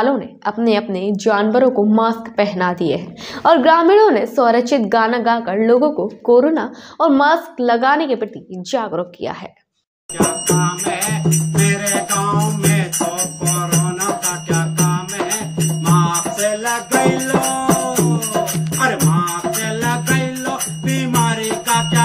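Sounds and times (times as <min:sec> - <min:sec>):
jingling percussion: 0:10.1 - 0:22.0
man singing folk song: 0:10.2 - 0:22.0.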